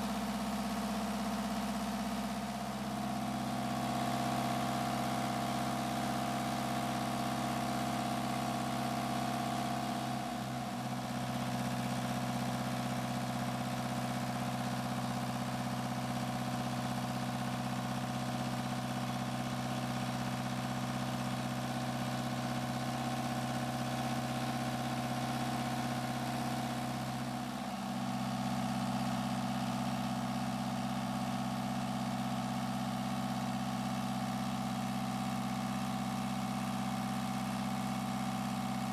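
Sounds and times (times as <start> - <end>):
diesel engine idling: 8.2 - 38.9.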